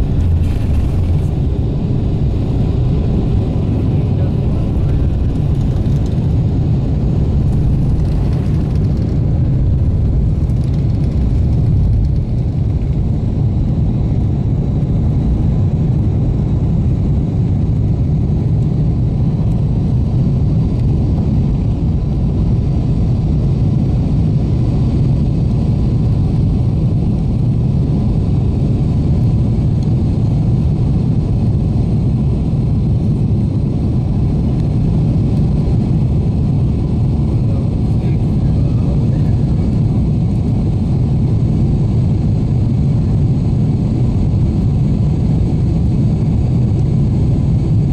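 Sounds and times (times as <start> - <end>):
jet engines low rumble: 0.0 - 47.9.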